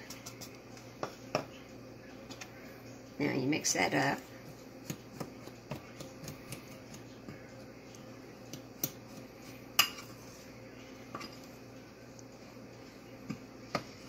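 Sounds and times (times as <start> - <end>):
fingers mixing dry flour: 0.0 - 1.5, 4.0 - 10.6
faint hum: 0.0 - 14.0.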